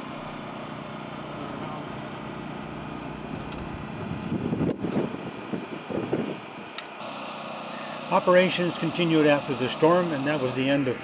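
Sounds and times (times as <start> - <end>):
engine humming: 5.9 - 11.0.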